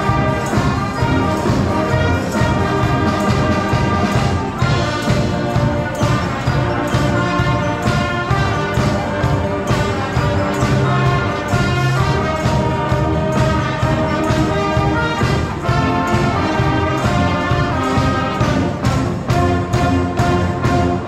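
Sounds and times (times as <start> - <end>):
steady drum beat: 0.0 - 21.0
wind band playing: 0.0 - 21.0.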